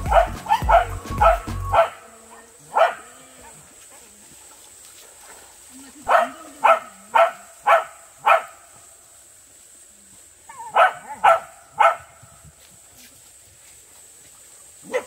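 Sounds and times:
dog barking: 0.0s - 3.6s, 6.1s - 8.6s, 10.6s - 12.2s.

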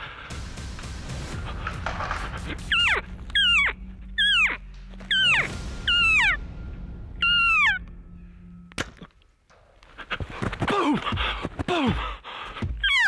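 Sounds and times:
elk squealing: 2.6s - 6.4s, 7.2s - 7.8s.

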